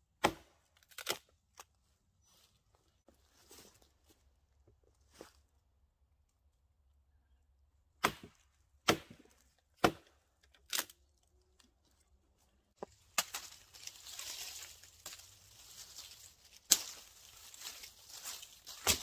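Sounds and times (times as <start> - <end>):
axe chopping log: 0.2 - 1.2, 8.0 - 10.9, 18.7 - 19.0
axe striking branch: 0.2 - 1.2, 8.0 - 10.9, 13.1 - 15.3, 15.9 - 19.0.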